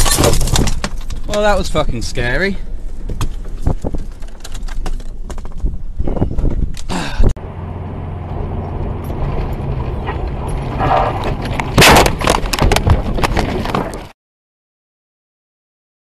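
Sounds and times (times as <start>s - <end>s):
sharp knocks and clatters: 0.0s - 1.5s, 9.1s - 14.1s
car cabin engine and tyre drone: 6.7s - 13.2s
loud collision impact: 10.4s - 13.2s.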